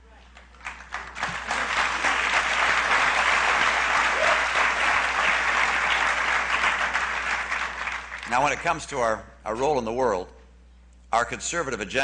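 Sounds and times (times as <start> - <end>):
large audience applauding: 0.5 - 8.8.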